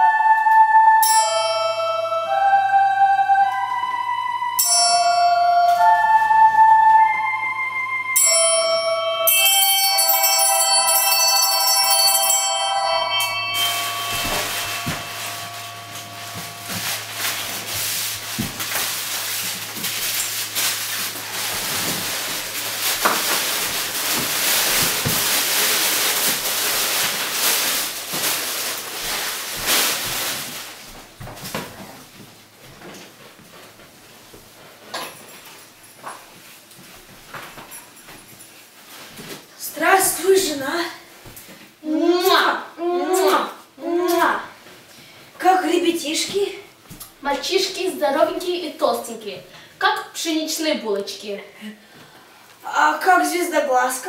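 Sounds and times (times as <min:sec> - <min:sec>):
chiming bell melody: 0:00.0 - 0:20.5
rustling hiss: 0:13.1 - 0:31.0.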